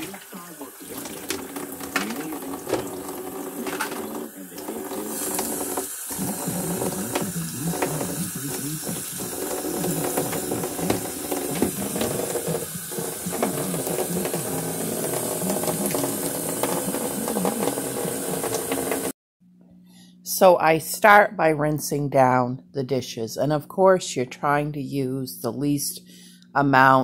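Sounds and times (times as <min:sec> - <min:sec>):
faucet running into plastic pan: 0:00.0 - 0:19.1.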